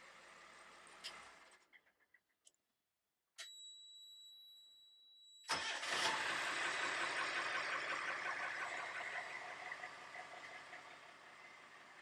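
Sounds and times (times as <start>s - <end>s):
diesel engine starting and running: 5.5s - 12.0s.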